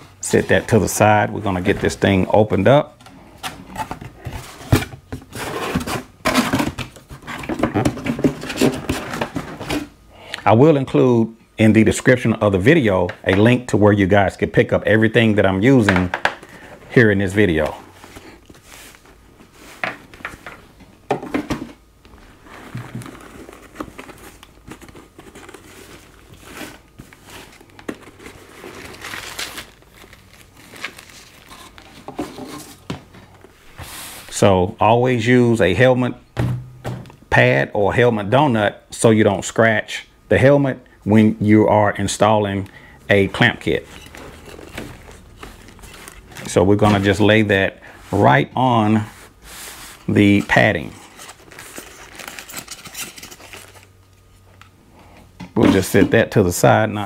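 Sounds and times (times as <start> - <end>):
plastic bag crinkling: 22.2 - 32.1, 43.4 - 47.3, 50.3 - 54.0
cardboard box rustling: 22.3 - 32.9.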